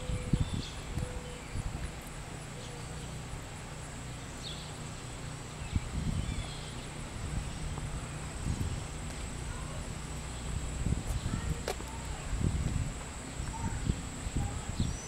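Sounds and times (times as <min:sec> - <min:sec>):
footsteps: 0:10.9 - 0:13.7.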